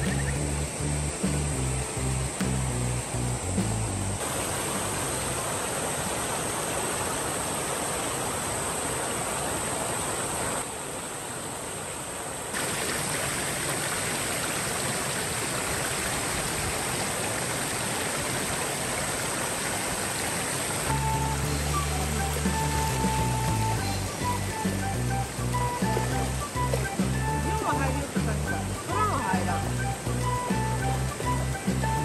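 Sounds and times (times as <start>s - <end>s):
water rushing over stone weir: 0.0s - 32.0s.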